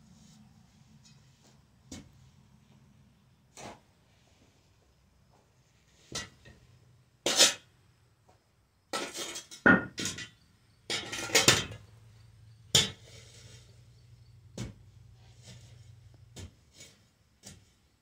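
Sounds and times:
shovel scraping dirt floor: 3.5s - 4.3s, 7.2s - 7.7s, 8.9s - 10.2s, 10.9s - 11.8s, 12.8s - 13.9s, 14.6s - 17.8s
metal clanks: 9.0s - 11.9s.

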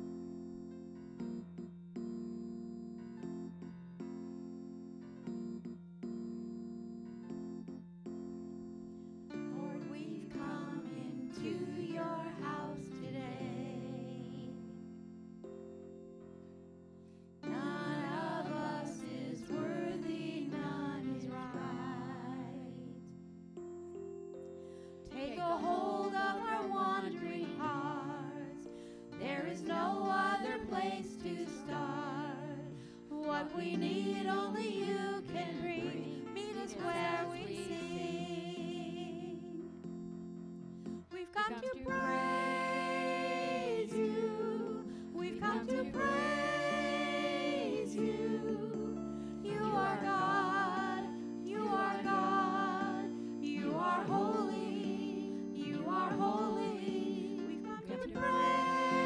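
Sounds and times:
group singing a praise song: 9.6s - 14.6s, 17.4s - 23.0s, 25.2s - 28.6s, 29.2s - 39.6s, 41.5s - 59.0s.

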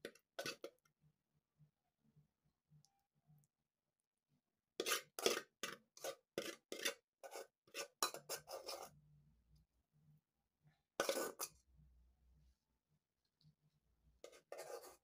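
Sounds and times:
metal spoon scraping a pot: 0.0s - 0.8s, 4.8s - 9.0s, 11.0s - 11.6s, 14.2s - 15.0s.

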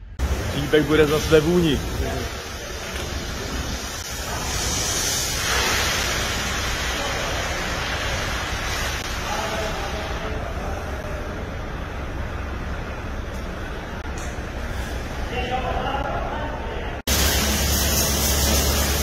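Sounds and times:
pressure washer spray hissing: 0.2s - 10.2s, 17.1s - 19.0s.

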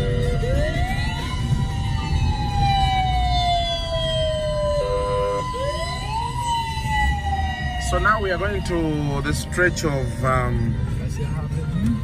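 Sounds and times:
siren wailing: 0.0s - 9.4s
car road noise rumble: 0.0s - 12.0s.

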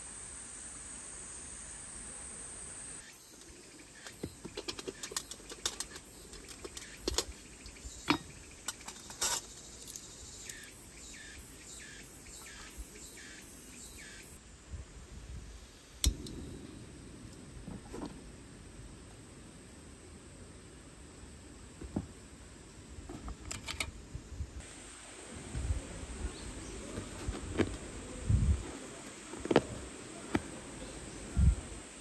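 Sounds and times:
small metal clicks and clinks: 3.4s - 10.7s
stove igniter click: 16.0s - 16.5s.

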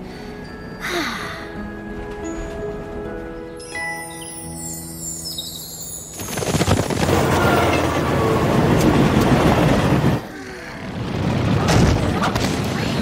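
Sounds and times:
train rushing past: 6.1s - 11.7s.

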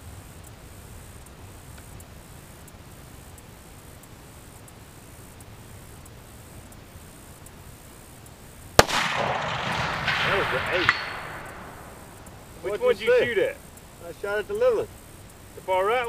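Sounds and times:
faint high ticks: 0.0s - 16.0s
steady hiss: 0.0s - 16.0s
faint click: 1.2s - 7.6s.

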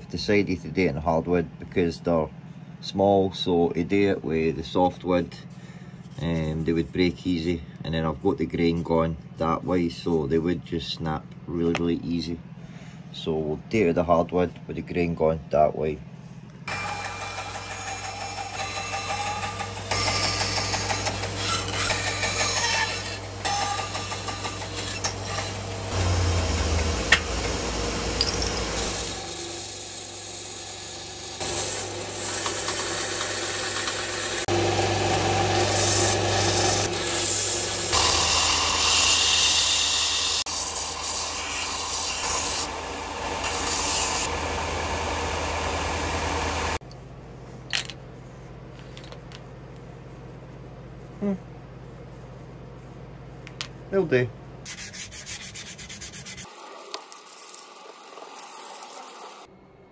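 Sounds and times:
bandsaw cutting wood: 16.7s - 46.8s, 54.7s - 59.5s
belt sander sanding wood: 16.7s - 46.8s, 54.7s - 59.5s.

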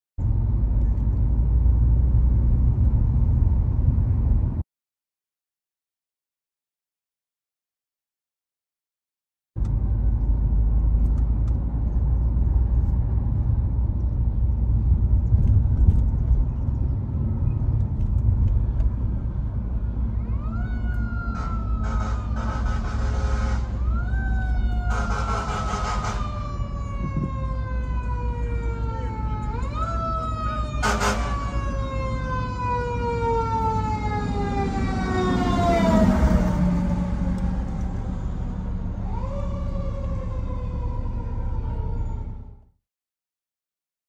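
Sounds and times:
low road rumble: 0.2s - 4.6s, 9.6s - 42.8s
fire truck siren wailing: 19.8s - 42.8s.

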